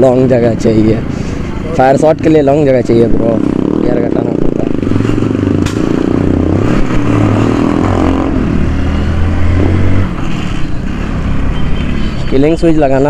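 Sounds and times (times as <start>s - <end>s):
sharp engine pop: 5.6s - 6.1s.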